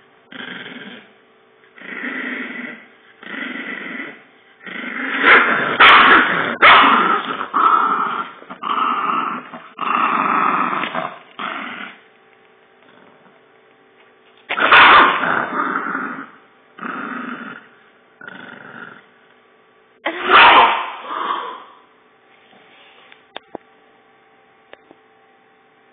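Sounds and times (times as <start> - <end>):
dog growling: 0.3 - 12.0, 12.8 - 13.4, 14.5 - 19.2, 20.1 - 21.8.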